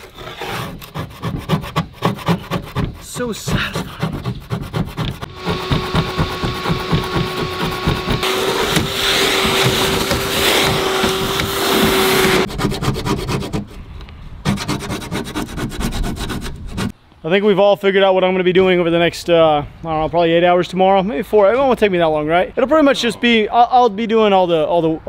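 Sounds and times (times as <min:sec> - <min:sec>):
hand scraper scraping deck: 0:00.0 - 0:13.8
shop vacuum whining: 0:05.0 - 0:12.5.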